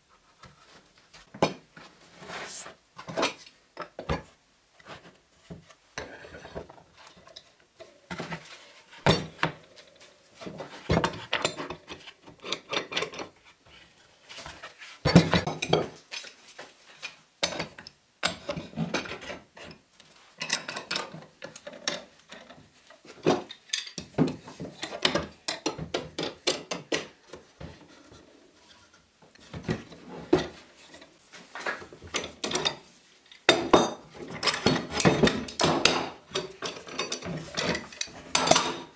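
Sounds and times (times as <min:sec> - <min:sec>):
metal clamps clanking on wood: 0:33.5 - 0:38.9.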